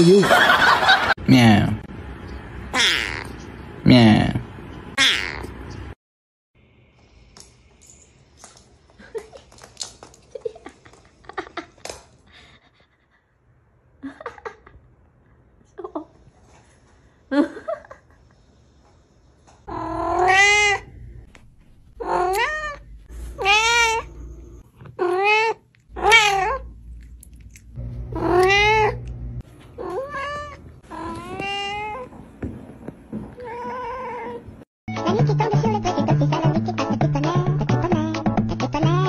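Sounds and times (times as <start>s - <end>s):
cats meowing: 2.8s - 3.4s, 19.6s - 20.9s, 22.0s - 26.7s, 28.1s - 29.1s, 29.8s - 32.2s.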